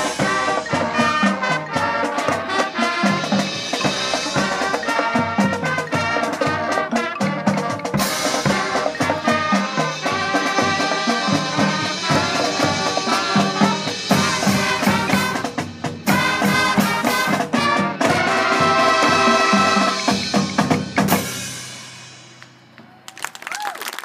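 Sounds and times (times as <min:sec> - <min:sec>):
marching band playing: 0:00.0 - 0:22.9
crowd applause: 0:22.8 - 0:24.0.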